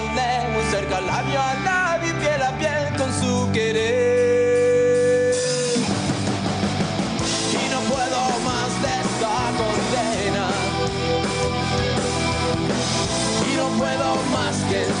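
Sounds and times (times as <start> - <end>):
man singing lead vocal: 0.0 - 5.9, 7.3 - 11.0, 13.2 - 15.0
rock band playing live: 0.0 - 15.0.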